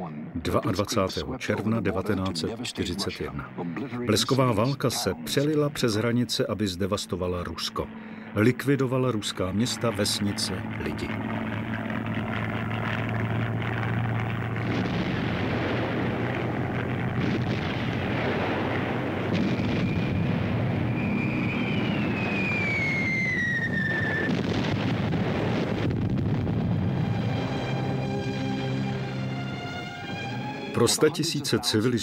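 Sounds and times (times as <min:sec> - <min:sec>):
rumble of aircraft: 0:00.0 - 0:32.0
explosions: 0:10.7 - 0:27.7
falling whistle: 0:19.7 - 0:24.4.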